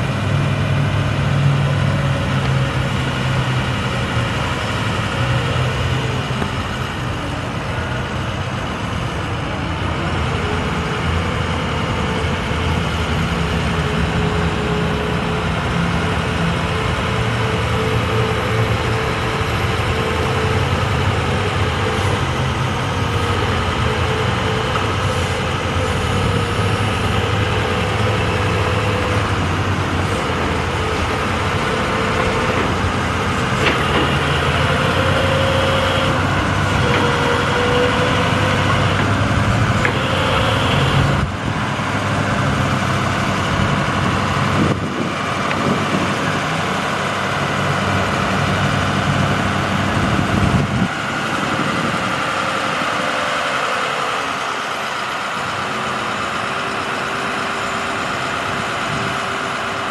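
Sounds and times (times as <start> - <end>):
diesel engine running: 0.0 - 59.9
wavering crane whine: 0.0 - 59.9.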